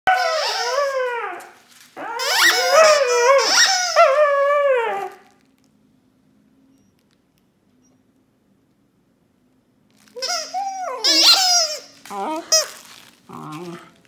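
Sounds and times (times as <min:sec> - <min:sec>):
puppy howling and whining: 0:00.1 - 0:05.4, 0:10.2 - 0:14.0.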